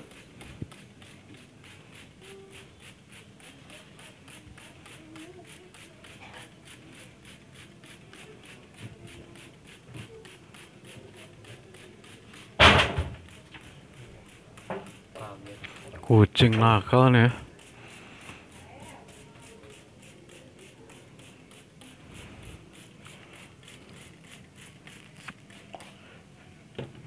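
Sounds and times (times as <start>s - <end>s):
spray bottle misting: 0.0s - 26.6s.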